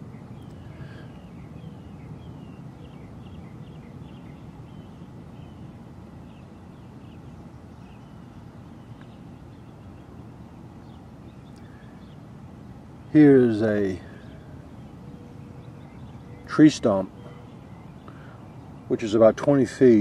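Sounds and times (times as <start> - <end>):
birds chirping: 0.0 - 20.0
low outdoor background noise: 0.0 - 20.0.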